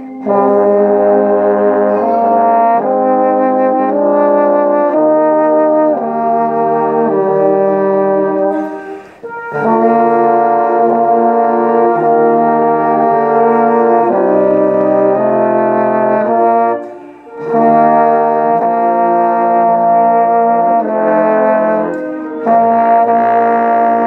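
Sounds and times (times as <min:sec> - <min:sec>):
trombones playing a slow hymn: 0:00.0 - 0:24.0.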